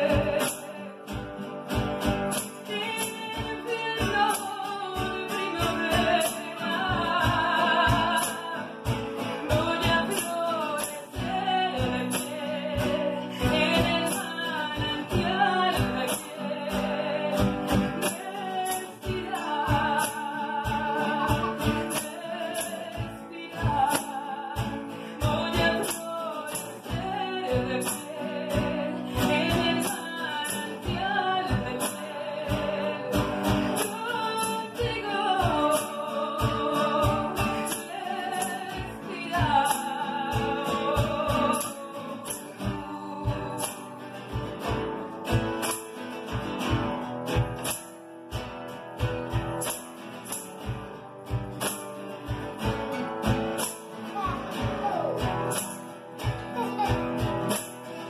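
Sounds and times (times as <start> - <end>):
woman singing: 0.0 - 1.4, 2.3 - 45.7
cajon beat: 0.0 - 58.0
strummed acoustic guitars: 0.0 - 58.0.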